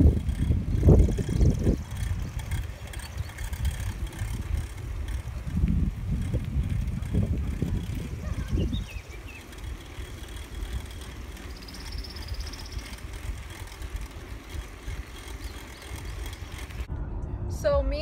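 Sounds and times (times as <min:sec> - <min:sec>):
faint rapid ticking: 0:00.0 - 0:16.9
wind buffeting microphone: 0:00.0 - 0:16.9.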